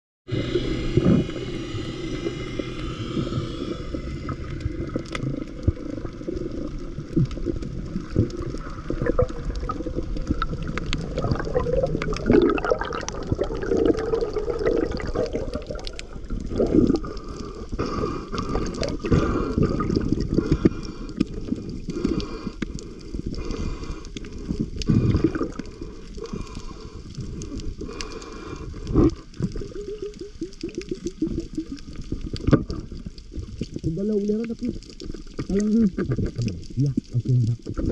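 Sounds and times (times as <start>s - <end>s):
surges of water: 0.3s - 22.5s
muffled underwater sloshing: 0.3s - 37.9s
clicks and crackles: 4.0s - 37.9s.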